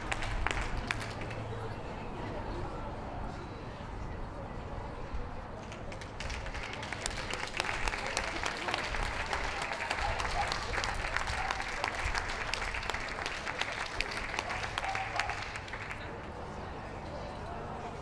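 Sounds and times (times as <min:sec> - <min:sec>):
audience applauding: 0:00.0 - 0:01.4, 0:05.8 - 0:16.1.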